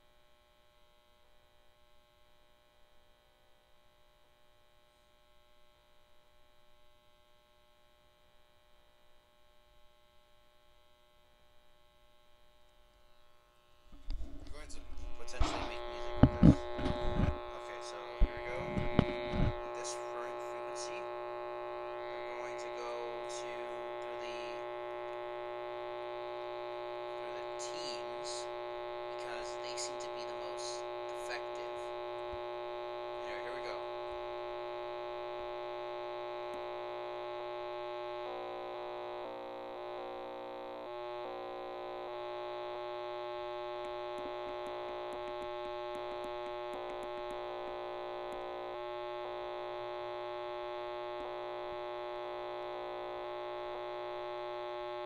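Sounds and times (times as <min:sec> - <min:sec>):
electronic hum of held tones: 0:00.0 - 0:55.0
faint ticks: 0:43.8 - 0:47.4.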